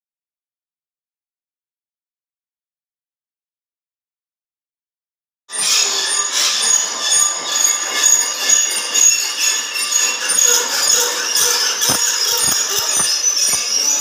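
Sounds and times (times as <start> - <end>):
files and hacksaws scraping steel: 5.5 - 14.0.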